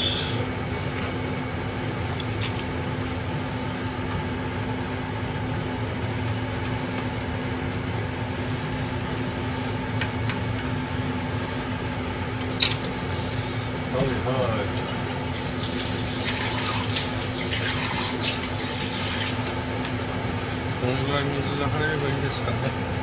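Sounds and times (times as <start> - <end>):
low mechanical hum: 0.0 - 23.0.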